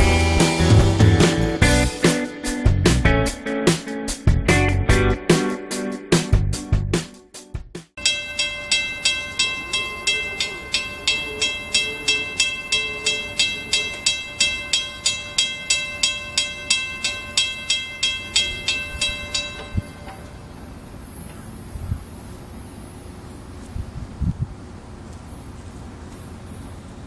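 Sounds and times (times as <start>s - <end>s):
railroad crossing bell ringing: 8.0s - 21.7s.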